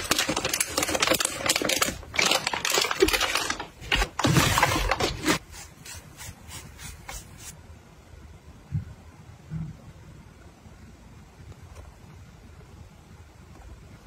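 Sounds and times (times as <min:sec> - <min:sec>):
plastic bags crinkling: 0:00.0 - 0:05.4
brush stroking plastic box: 0:00.0 - 0:07.6.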